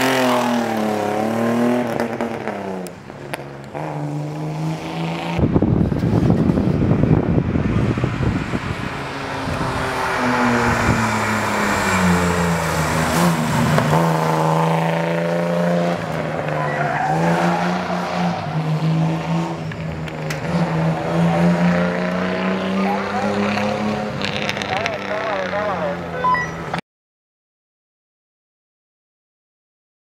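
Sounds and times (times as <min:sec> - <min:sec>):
car engine at high revs: 0:00.0 - 0:26.8
tyres squealing: 0:16.4 - 0:18.6.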